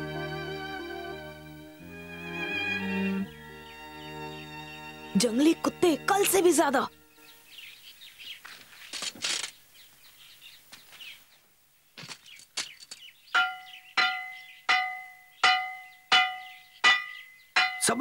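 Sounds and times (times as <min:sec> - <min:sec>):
dry knocks: 0:12.0 - 0:18.0
metal pan clanging: 0:13.4 - 0:18.0.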